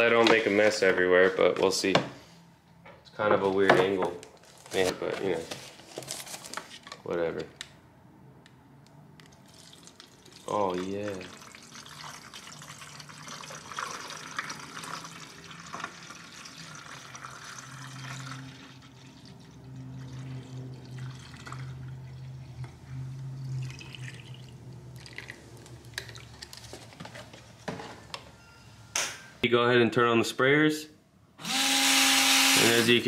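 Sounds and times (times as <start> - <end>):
water pouring into plastic tank: 9.4 - 22.5, 23.4 - 26.6
low hum: 17.8 - 26.4.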